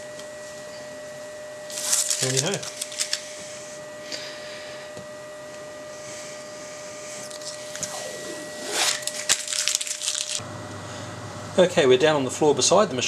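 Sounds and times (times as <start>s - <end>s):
faint steady hum: 0.0s - 13.0s
backing paper peeling off tape: 1.7s - 3.2s, 8.7s - 10.4s.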